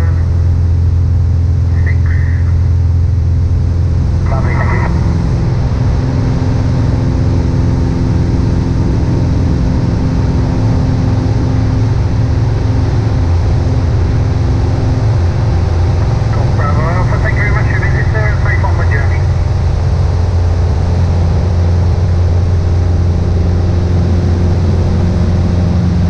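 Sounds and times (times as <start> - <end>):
airplane engine drone in cabin: 0.0 - 26.0.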